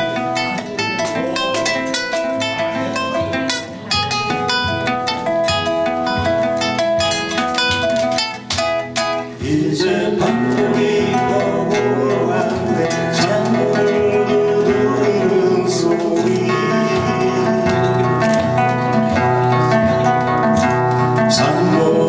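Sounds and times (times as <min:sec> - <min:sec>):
acoustic guitars playing: 0:00.0 - 0:22.0
man singing: 0:09.2 - 0:19.3, 0:20.9 - 0:22.0.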